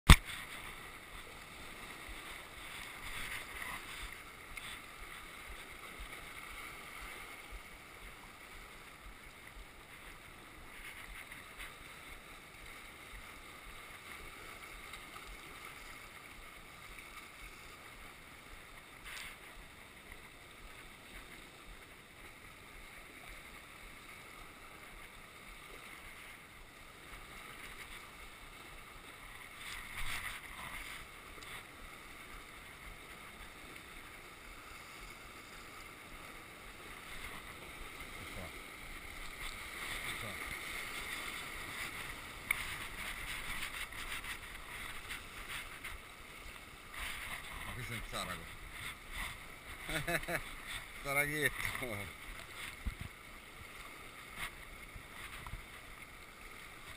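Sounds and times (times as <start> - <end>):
sea surf washing around rocks: 26.9 - 55.9.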